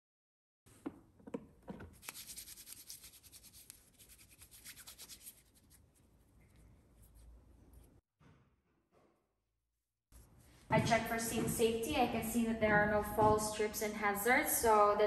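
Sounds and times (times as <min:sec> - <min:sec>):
hands rubbing together: 0:02.0 - 0:08.0.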